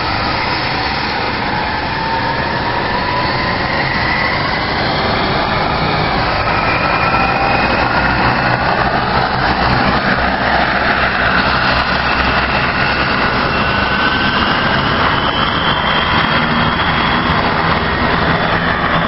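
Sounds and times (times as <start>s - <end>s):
helicopter rotor noise: 0.0s - 19.0s
helicopter turbine whine: 0.0s - 19.0s.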